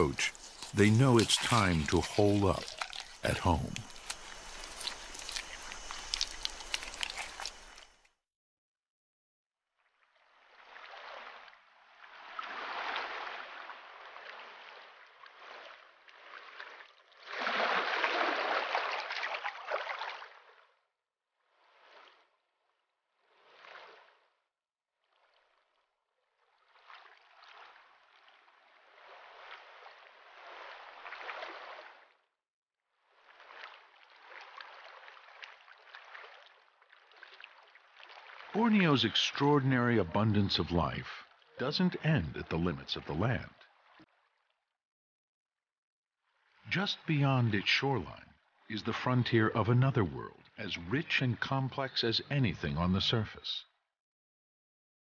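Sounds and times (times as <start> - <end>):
tidal water flowing and gurgling: 0.0 - 8.0, 9.8 - 20.8, 21.4 - 24.4, 25.0 - 32.2, 32.9 - 44.4.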